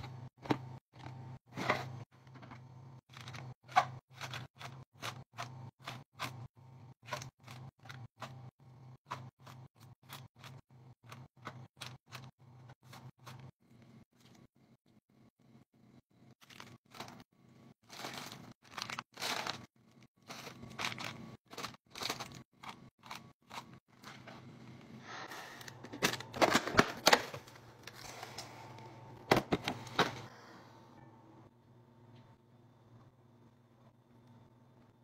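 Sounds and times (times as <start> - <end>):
plastic wrappers crinkling: 17.8 - 24.1.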